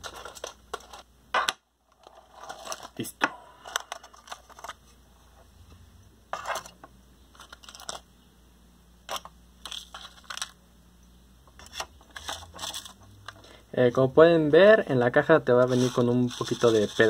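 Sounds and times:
plastic packaging crackling: 7.3 - 8.0, 9.1 - 10.6, 11.6 - 13.4, 15.4 - 17.0.

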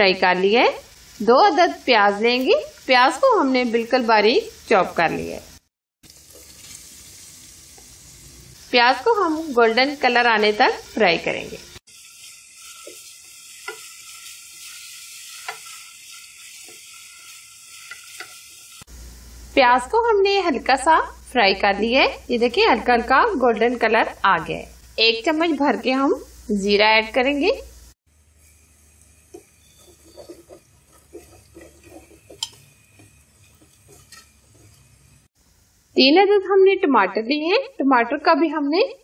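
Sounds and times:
onions sizzling in hot oil: 0.0 - 39.0
wooden spatula scraping a pot: 12.2 - 18.7, 28.4 - 35.3
spatula scraping a metal pot: 29.3 - 35.3.

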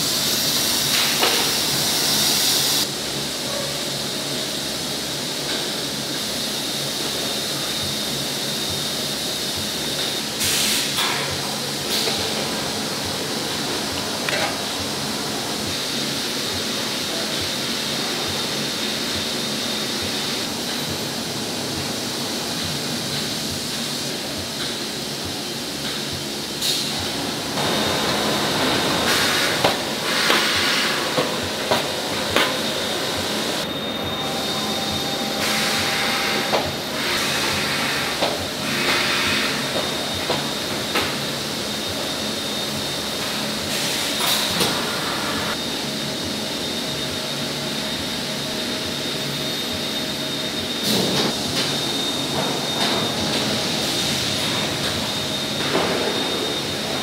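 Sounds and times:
machinery hiss and whine: 0.0 - 57.0
bursts of air hiss: 5.8 - 11.1, 29.0 - 31.2.

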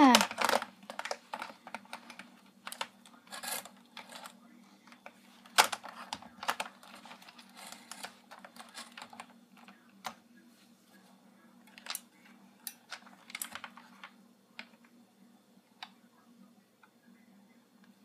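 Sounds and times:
plastic toy parts clicking: 0.0 - 4.4.

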